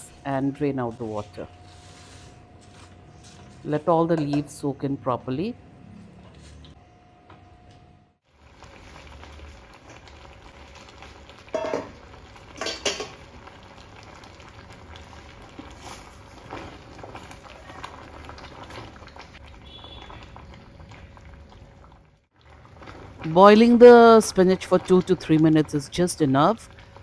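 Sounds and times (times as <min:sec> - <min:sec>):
water boiling in a pot: 0:08.2 - 0:27.0.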